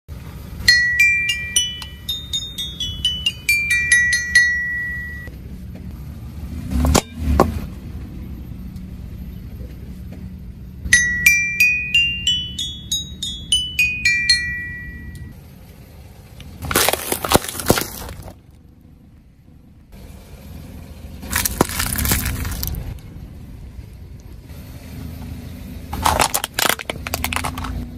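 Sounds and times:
toy xylophone notes: 0.6 - 5.3, 10.9 - 15.4
tyre crunching over wrappers: 16.6 - 18.4, 21.3 - 23.0.

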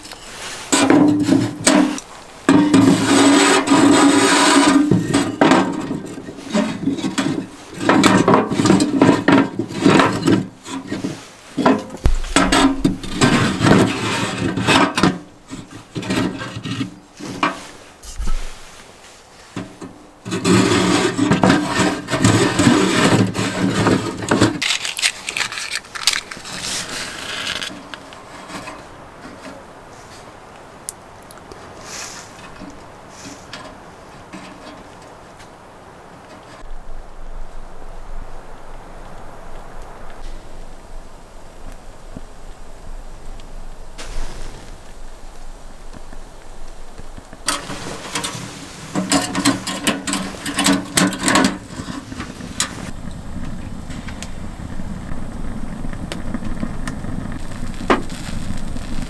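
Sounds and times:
hand tool rasping wood: 2.7 - 5.7.

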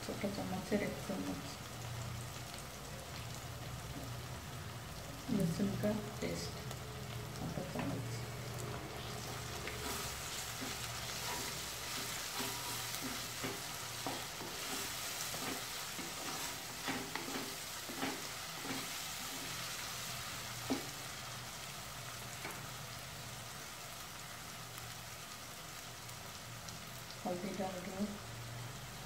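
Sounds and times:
masala sizzling in oil: 0.0 - 29.0
spoon scraping and knocking pan: 9.2 - 19.6, 20.6 - 21.0.

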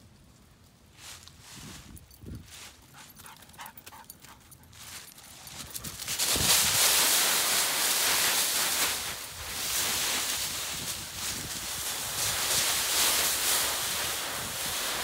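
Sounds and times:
dog paws pattering: 2.0 - 10.2
dogs digging in dry leaves: 4.8 - 15.0.

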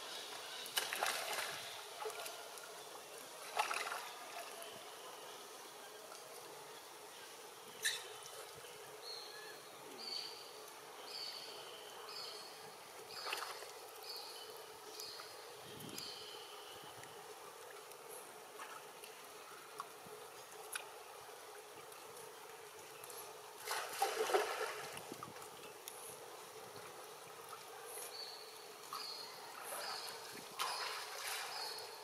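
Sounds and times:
water lapping and splashing: 0.6 - 4.8, 13.0 - 14.1, 16.9 - 25.7, 28.8 - 32.0.

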